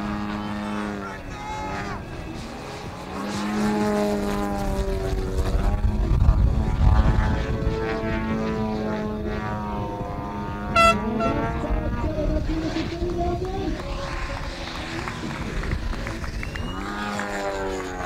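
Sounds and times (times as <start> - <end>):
model plane engine droning: 0.0 - 18.0
brief high tone: 10.8 - 11.5.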